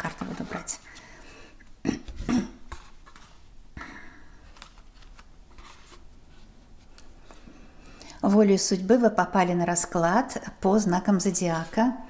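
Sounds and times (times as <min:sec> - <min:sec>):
cards being handled: 0:02.7 - 0:03.4, 0:04.4 - 0:07.4.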